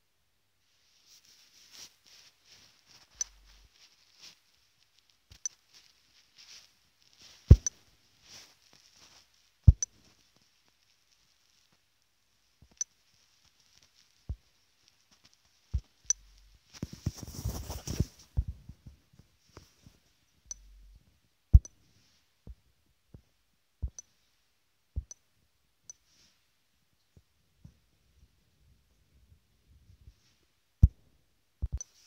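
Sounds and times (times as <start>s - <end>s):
fingertip tapping touchscreen: 3.2s - 3.6s, 5.3s - 5.6s, 7.5s - 7.8s, 9.7s - 10.0s, 15.8s - 16.5s, 20.5s - 20.8s, 21.6s - 21.8s, 23.8s - 24.1s, 25.0s - 25.2s, 31.6s - 32.0s.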